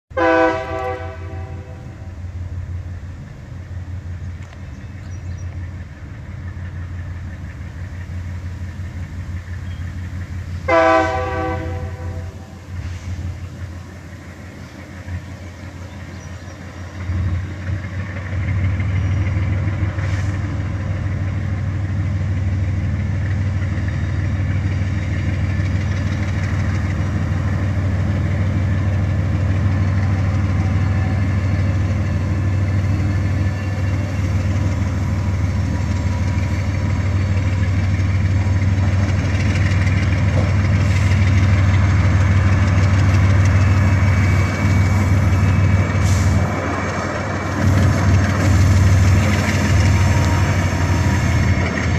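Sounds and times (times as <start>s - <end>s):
locomotive engine rumbling: 0.1s - 51.9s.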